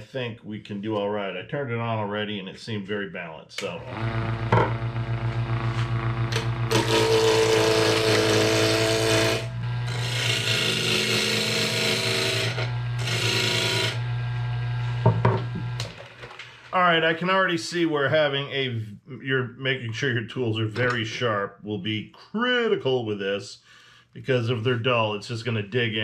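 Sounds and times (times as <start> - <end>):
gouge cutting spinning wood: 3.8 - 16.3
wood lathe humming: 3.8 - 16.7.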